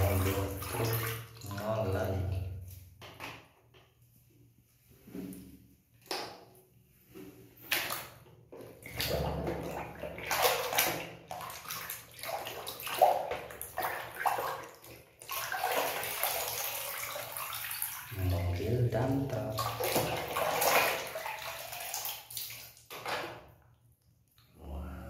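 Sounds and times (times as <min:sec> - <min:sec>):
hands sloshing water in basin: 0:00.0 - 0:02.9, 0:07.1 - 0:23.5.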